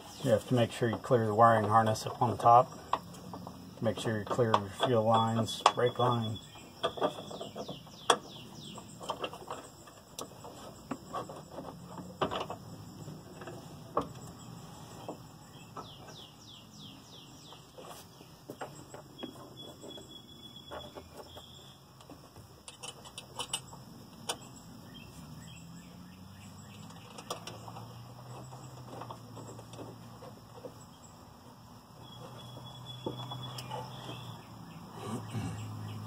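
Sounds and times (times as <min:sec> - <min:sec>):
bird chirping falling notes: 0:32.0 - 0:36.0.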